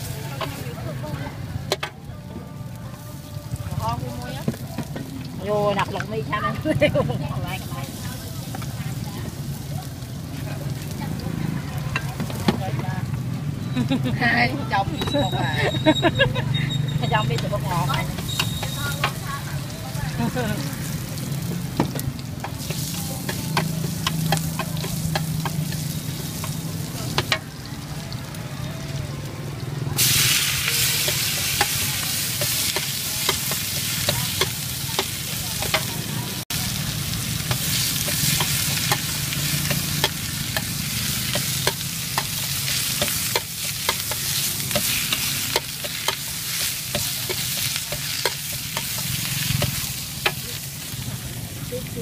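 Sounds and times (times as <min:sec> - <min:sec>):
stir-fry sizzling in a wok: 0:00.0 - 0:52.0
metal spatula scraping a pan: 0:16.6 - 0:19.2.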